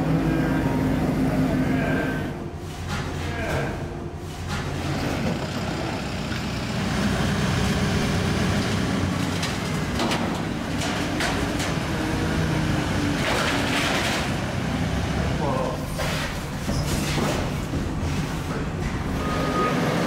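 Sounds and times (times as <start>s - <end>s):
heavy machine engine running: 0.0s - 20.0s.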